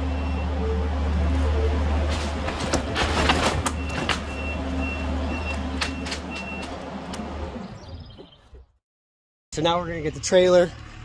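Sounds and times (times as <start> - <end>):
backup alarm beeping: 0.0 - 2.1, 3.7 - 6.8
diesel engine running: 0.0 - 8.7
sharp knocks and crackles: 2.1 - 4.4, 5.5 - 7.3.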